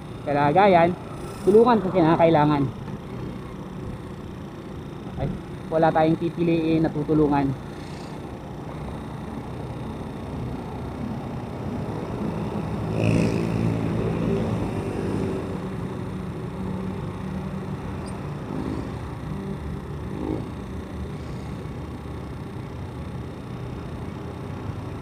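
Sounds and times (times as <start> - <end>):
road and wind noise: 0.0 - 4.1, 9.7 - 20.6
motorcycle engine running: 0.0 - 25.0.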